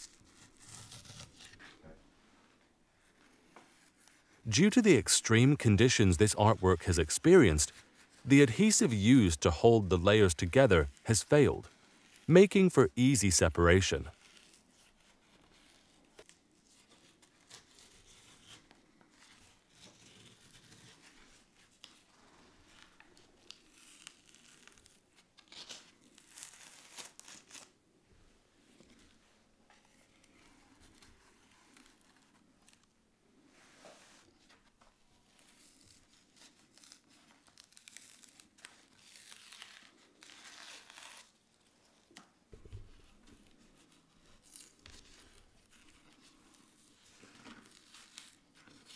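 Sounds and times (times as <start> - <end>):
paper tearing and scraping: 0.0 - 1.8, 14.1 - 18.6, 22.7 - 27.7, 35.3 - 41.5, 43.8 - 48.9.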